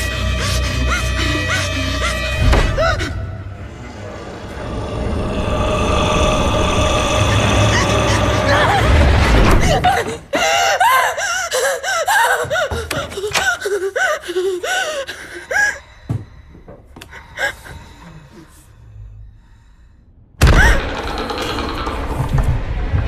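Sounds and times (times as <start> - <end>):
person gasping and whimpering: 7.0 - 16.1.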